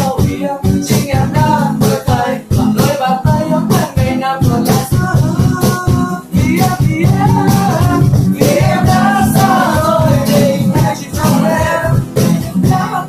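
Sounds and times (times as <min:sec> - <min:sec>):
acoustic guitars strummed: 0:00.0 - 0:13.0
hand shaker rhythm: 0:00.0 - 0:13.0
men singing pop song: 0:00.0 - 0:13.0.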